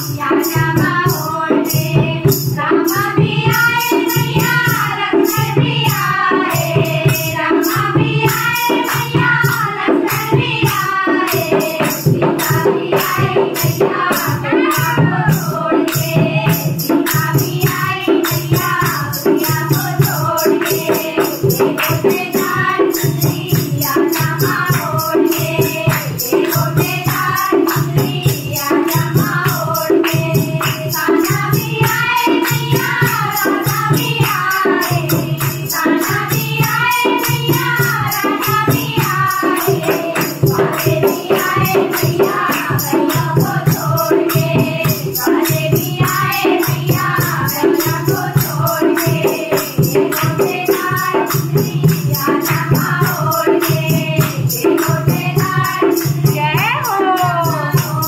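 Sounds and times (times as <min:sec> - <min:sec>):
jingling metal percussion: 0:00.0 - 0:58.0
steady drum beat: 0:00.0 - 0:58.0
women singing in unison: 0:00.0 - 0:58.0.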